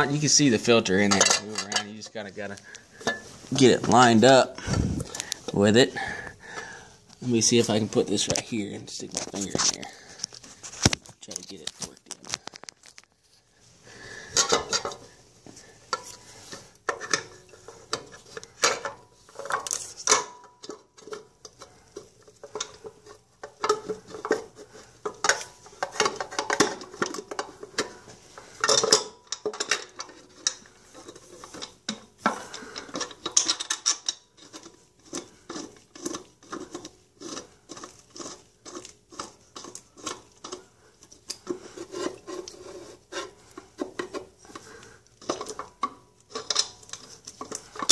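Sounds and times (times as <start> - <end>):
metallic clinks and scrapes: 0.0 - 4.1, 15.9 - 47.9.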